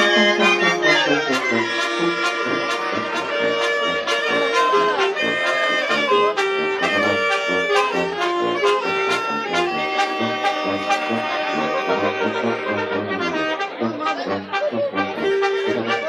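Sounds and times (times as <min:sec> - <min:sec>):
wind band playing: 0:00.0 - 0:16.0.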